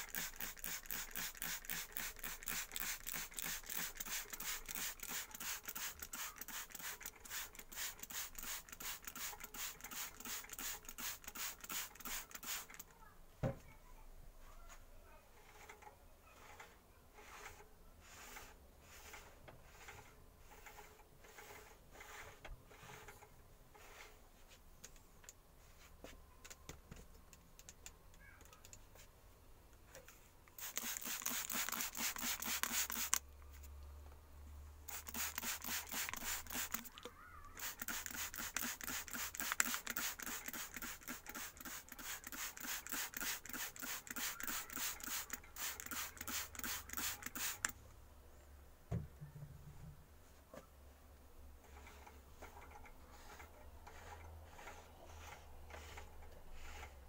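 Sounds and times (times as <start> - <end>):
hand tool scraping wood: 15.4 - 24.2, 51.6 - 57.0.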